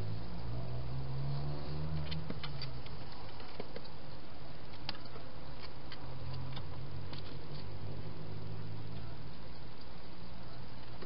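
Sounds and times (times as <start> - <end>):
hedgehogs clicking and tapping: 1.9 - 7.7.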